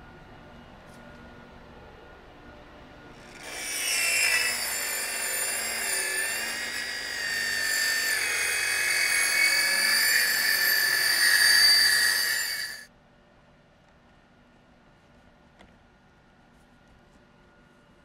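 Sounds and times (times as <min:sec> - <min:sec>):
circular saw cutting plastic panel: 0:03.2 - 0:12.9.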